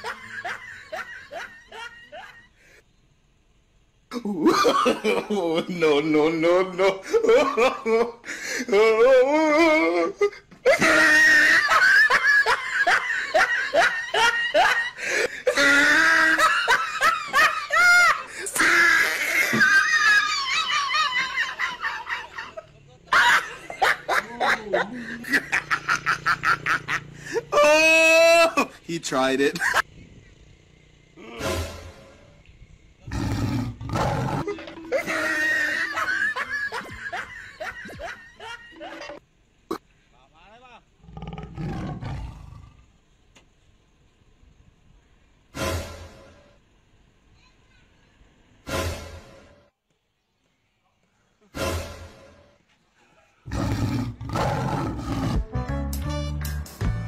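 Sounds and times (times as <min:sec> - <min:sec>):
person laughing hard: 0:00.0 - 0:02.6, 0:04.1 - 0:28.8, 0:34.3 - 0:39.2.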